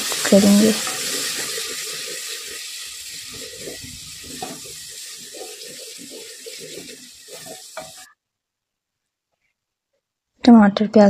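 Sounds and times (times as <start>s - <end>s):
wooden spatula scraping: 0.0s - 8.1s
masala sizzling and bubbling: 0.0s - 8.2s.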